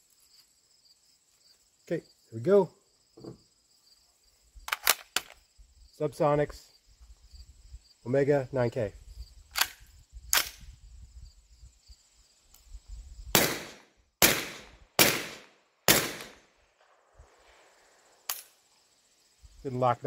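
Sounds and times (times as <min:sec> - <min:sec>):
gun action cycling: 0:04.7 - 0:05.4, 0:09.5 - 0:10.6
suppressed gunshots: 0:13.4 - 0:17.7.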